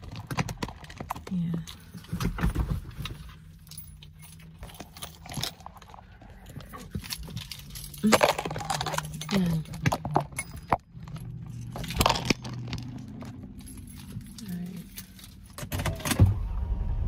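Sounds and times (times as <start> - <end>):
low steady car hum: 0.0 - 17.0.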